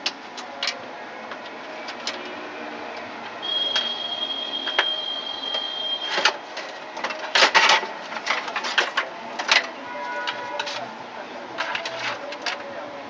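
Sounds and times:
thin steady high tone: 3.4 - 6.3.

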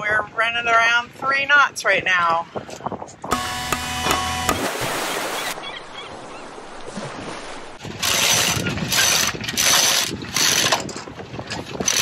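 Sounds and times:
wind: 0.0 - 12.0
rope rasping through pulley block: 8.0 - 10.9.

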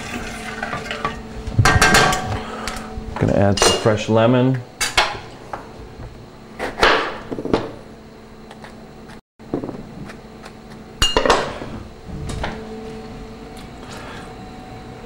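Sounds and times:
faint steady hum: 0.0 - 6.6
utensils and pans clattering: 0.1 - 2.3, 3.5 - 4.0, 11.0 - 11.6.

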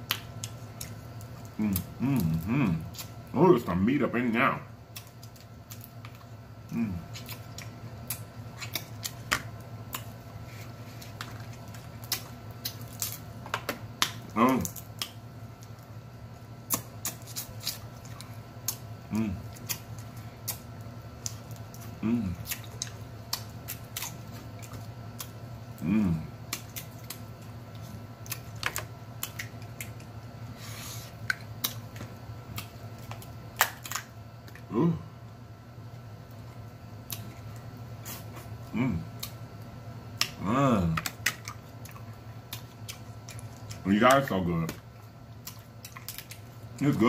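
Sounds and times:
mouth sounds of eating: 0.0 - 9.3, 14.0 - 15.8, 16.6 - 28.6, 34.4 - 35.3, 36.3 - 47.0
low steady hum: 0.0 - 47.0
crab shells cracking: 11.0 - 15.9, 19.5 - 25.8, 26.4 - 30.2, 31.2 - 34.7, 40.1 - 46.9.

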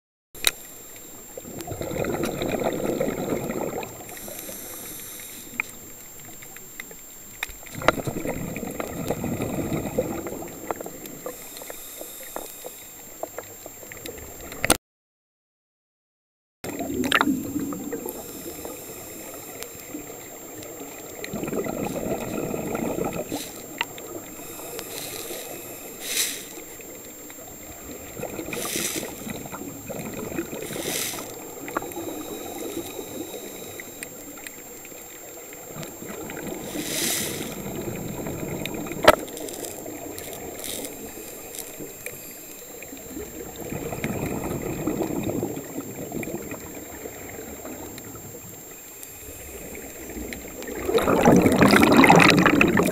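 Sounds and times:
exhaled bubbles gurgling underwater: 0.4 - 14.7, 16.7 - 52.9
regulator hissing breaths: 4.1 - 5.9, 11.2 - 13.0, 18.1 - 20.2, 23.2 - 27.7, 28.4 - 34.8, 36.4 - 38.7.

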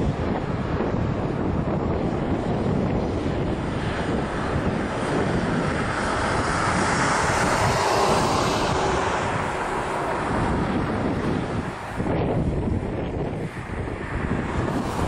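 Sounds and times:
jet engines running: 0.0 - 15.0
wind buffeting microphone: 0.0 - 15.0.

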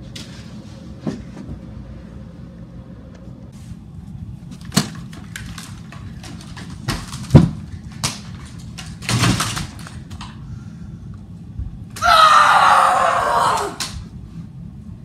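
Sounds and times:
loud harsh cry: 12.0 - 14.0.

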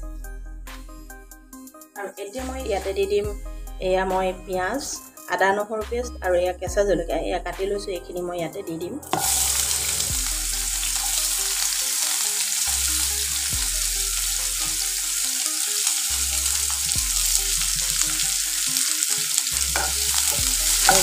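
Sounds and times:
food sizzling in hot oil: 9.1 - 21.0.

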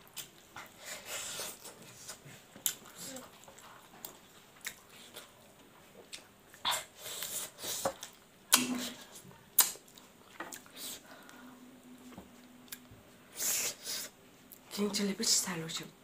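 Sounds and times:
person chewing food: 0.0 - 11.4, 12.0 - 12.9
sharp lip clicks: 9.6 - 9.8
wet mouth smacks: 9.6 - 9.9.

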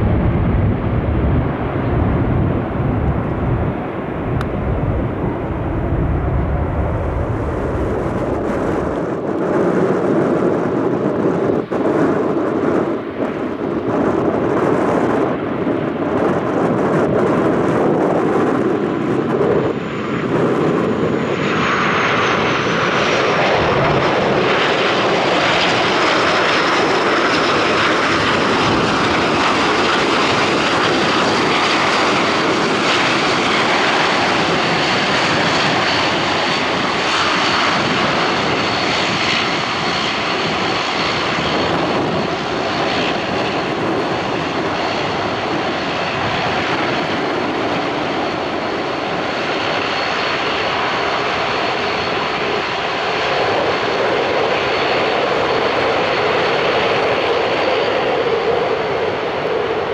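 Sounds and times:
turboprop engines running: 0.0 - 59.9
high engine whine: 17.1 - 59.9.

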